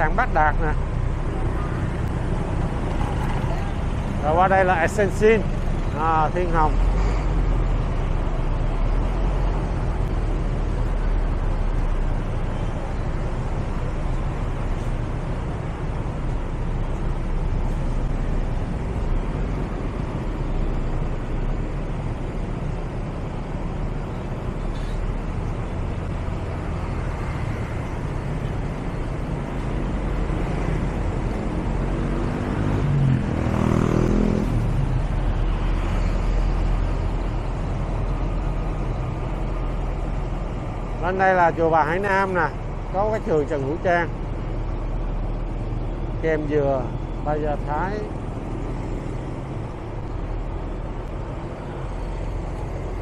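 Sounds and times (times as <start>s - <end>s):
road traffic rumble: 0.0s - 53.0s
vehicle passing by: 25.7s - 38.6s.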